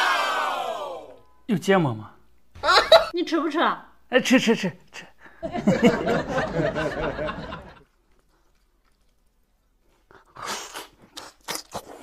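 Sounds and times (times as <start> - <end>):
man laughing: 2.6 - 3.1.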